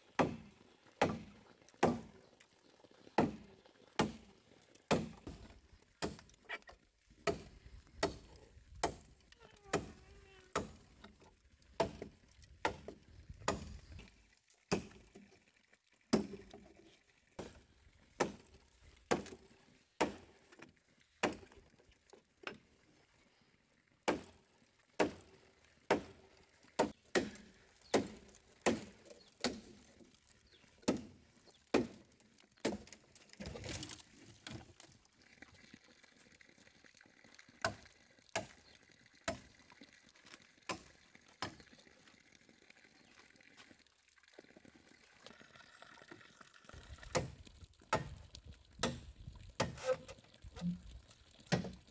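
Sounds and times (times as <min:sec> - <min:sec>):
machete chopping bamboo: 0:00.2 - 0:02.1, 0:03.2 - 0:04.3, 0:04.9 - 0:06.4, 0:07.2 - 0:09.1, 0:09.7 - 0:10.8, 0:11.8 - 0:13.8, 0:14.7 - 0:15.0, 0:16.1 - 0:16.4, 0:18.2 - 0:18.4, 0:19.1 - 0:19.4, 0:20.0 - 0:20.3, 0:21.2 - 0:21.5, 0:24.1 - 0:24.4, 0:25.0 - 0:25.2, 0:25.9 - 0:26.2, 0:26.8 - 0:29.8, 0:30.8 - 0:32.0, 0:32.6 - 0:33.9, 0:38.4 - 0:38.6, 0:40.7 - 0:41.6, 0:47.1 - 0:48.2, 0:48.8 - 0:49.0, 0:49.6 - 0:50.8, 0:51.5 - 0:51.8.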